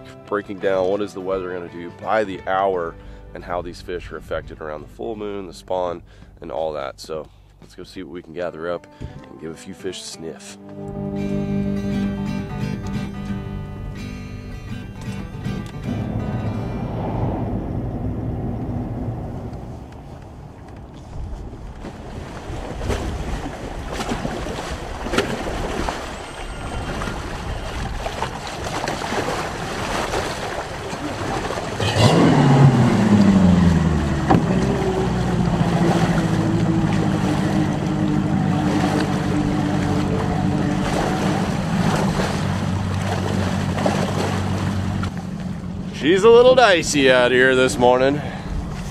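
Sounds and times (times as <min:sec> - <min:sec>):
wind: 0:00.0 - 0:09.4, 0:10.6 - 0:48.9
outboard motor running: 0:10.6 - 0:48.9
water splashing spray: 0:24.6 - 0:45.2.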